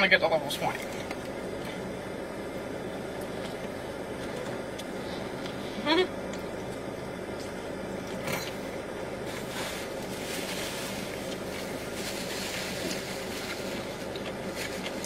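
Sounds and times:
paper napkin crinkling: 9.3 - 15.0.

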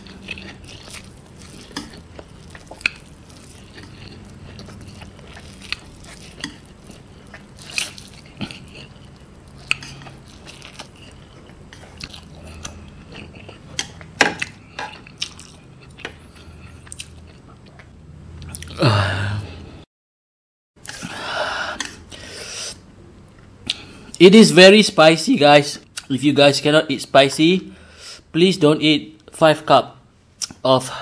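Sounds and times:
person chewing and slurping noodles: 0.0 - 19.0.

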